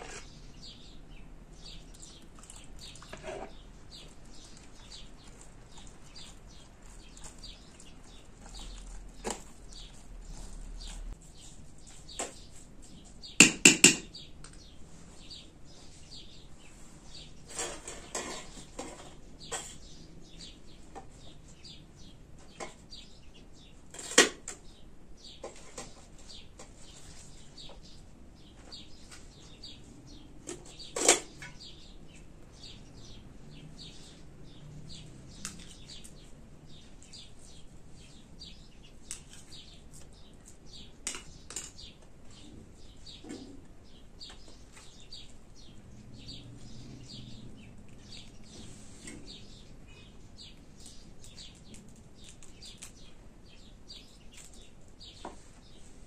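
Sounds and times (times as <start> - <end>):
handling and rustling: 2.3 - 13.3, 25.4 - 31.6.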